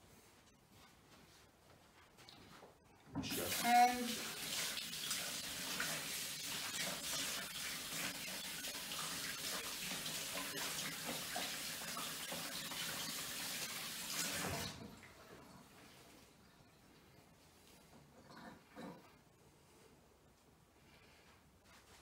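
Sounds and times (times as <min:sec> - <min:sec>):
hands washing under water: 0:03.2 - 0:14.8
tap water running into sink: 0:03.2 - 0:15.5.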